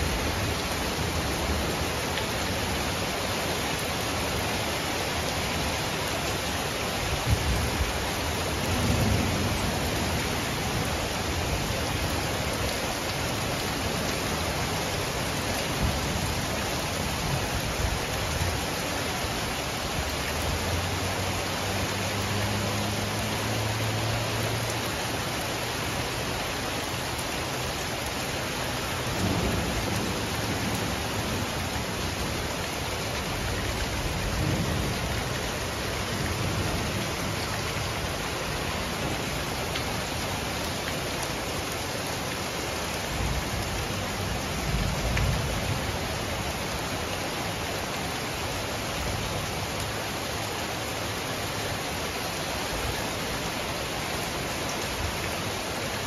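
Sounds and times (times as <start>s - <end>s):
heavy rain falling: 0.0s - 56.0s
low rolls of thunder: 29.2s - 31.5s.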